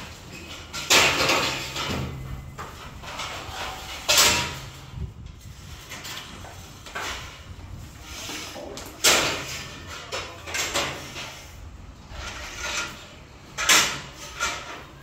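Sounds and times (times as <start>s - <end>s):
paint roller strokes on ceiling: 2.6s - 10.0s
roller swishing in paint bucket: 5.4s - 9.0s.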